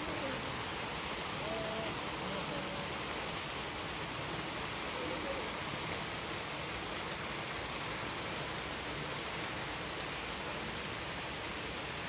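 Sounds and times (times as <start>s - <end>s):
faint voice: 0.0s - 0.6s, 1.4s - 3.0s, 4.8s - 5.6s.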